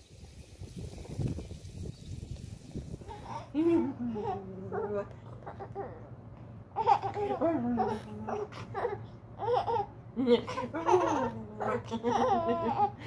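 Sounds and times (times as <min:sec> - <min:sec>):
baby babbling: 0:03.1 - 0:06.1, 0:06.8 - 0:09.9
woman laughing: 0:03.5 - 0:04.7, 0:10.2 - 0:13.0.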